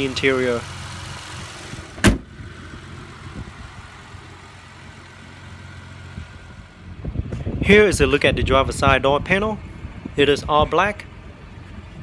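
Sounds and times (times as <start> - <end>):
car engine idling: 0.0 - 8.3
car hood slamming shut: 2.0 - 2.3.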